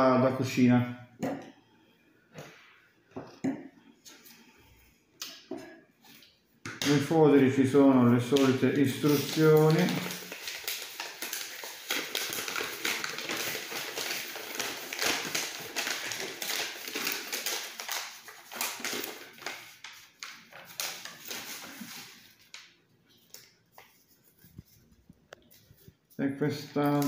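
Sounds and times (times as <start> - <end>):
paper rustling and crackling: 6.9 - 27.0.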